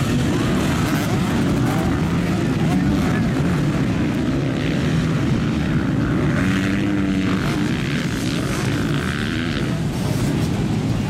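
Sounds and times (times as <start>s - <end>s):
motocross bike engines revving: 0.0s - 11.0s.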